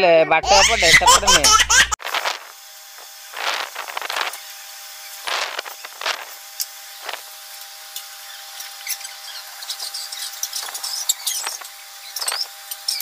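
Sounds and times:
high squeaks: 8.3s - 13.0s.

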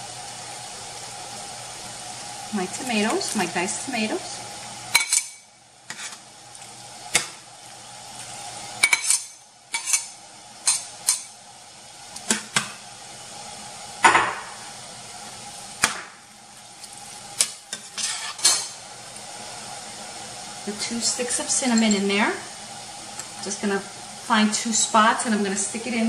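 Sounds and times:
meat sizzling in a pan: 0.0s - 26.0s
metal spoon scraping a pan: 4.9s - 6.2s, 8.8s - 11.3s, 17.7s - 18.8s.

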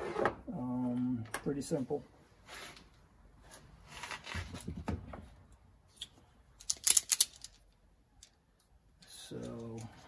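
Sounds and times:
wires rustling: 2.6s - 10.0s.

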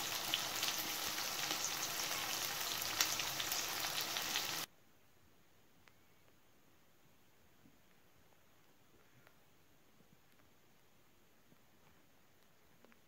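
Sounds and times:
chicken sizzling in hot oil: 0.0s - 4.7s.

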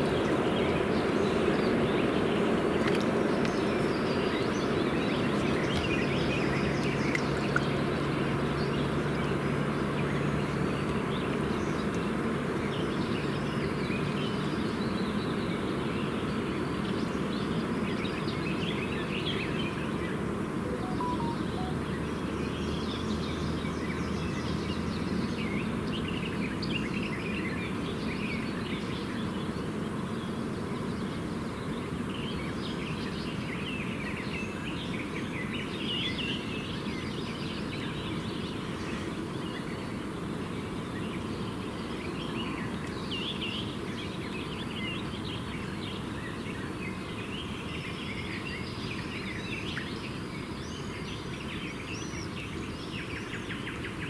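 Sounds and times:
lake ambience: 20.7s - 21.8s
short bird chirps: 20.7s - 21.8s.

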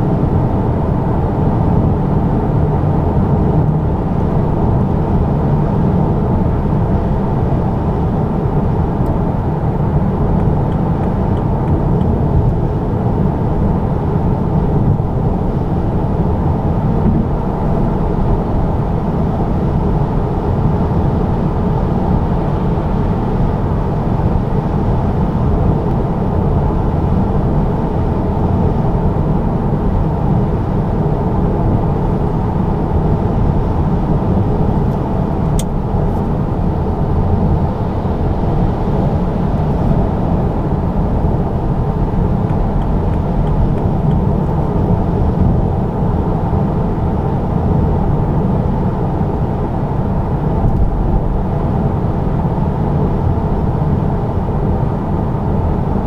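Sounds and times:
car engine drone in cabin: 0.0s - 56.0s
tyre and road noise: 15.9s - 18.4s.

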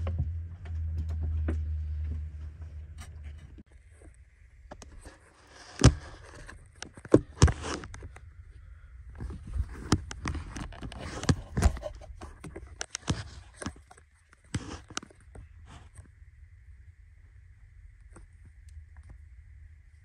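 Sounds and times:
camera handling rustling and scraping: 5.0s - 8.2s, 9.2s - 15.5s.

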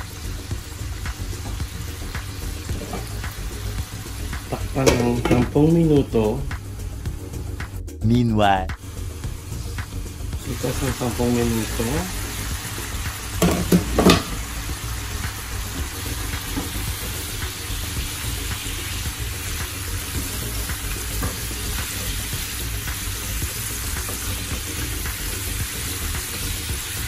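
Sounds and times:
meat sizzling in a pot: 0.0s - 7.6s, 8.7s - 27.0s
spatula stirring: 0.1s - 5.4s.

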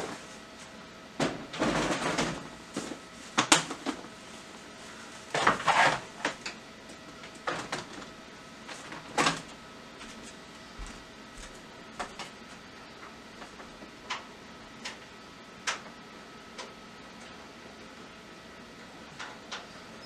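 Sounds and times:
rummaging knocks and rattles: 1.2s - 4.1s, 5.3s - 6.5s.

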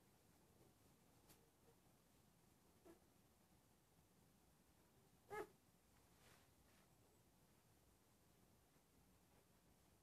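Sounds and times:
soft rustles on cloth: 5.9s - 7.0s.

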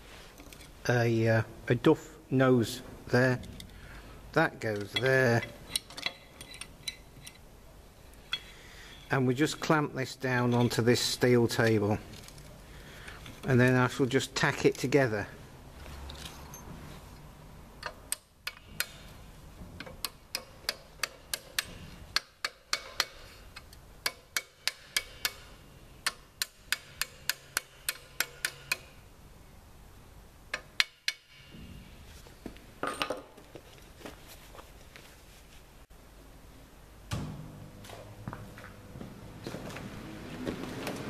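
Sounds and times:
metal-on-metal taps: 17.8s - 23.2s, 26.0s - 28.9s, 30.5s - 31.7s.

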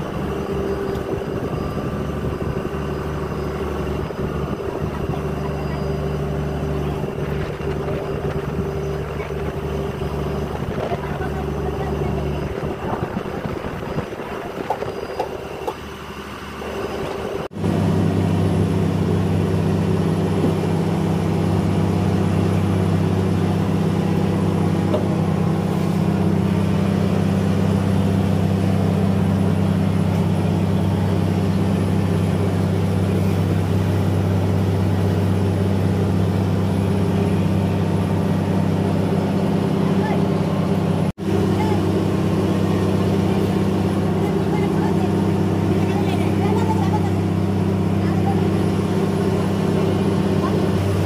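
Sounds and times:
boat diesel engine droning: 0.0s - 51.0s.

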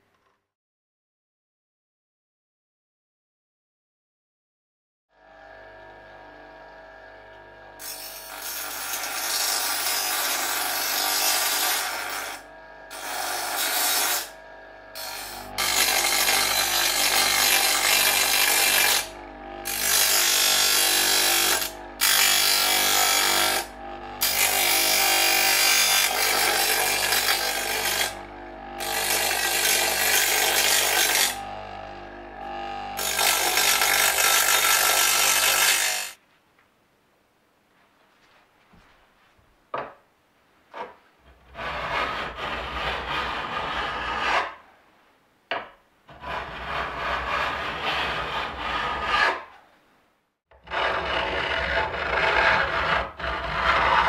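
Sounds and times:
bench grinder motor hum: 5.1s - 36.1s, 50.5s - 54.0s
saw teeth grinding on wheel: 7.8s - 36.2s, 50.6s - 54.0s.

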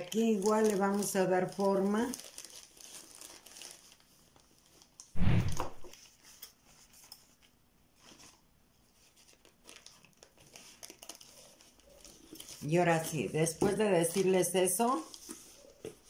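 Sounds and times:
plastic sheeting rustling: 0.0s - 5.9s.

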